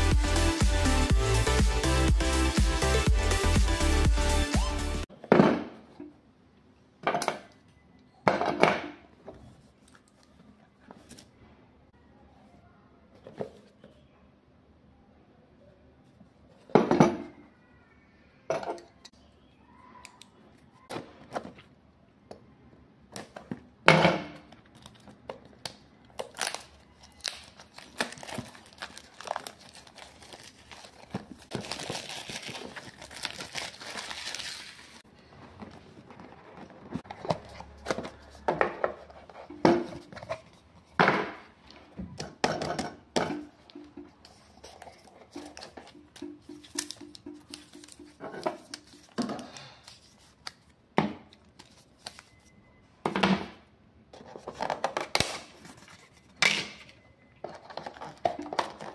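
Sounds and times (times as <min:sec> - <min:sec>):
plastic shrink-wrap crinkling and tearing: 0:26.2 - 0:35.0.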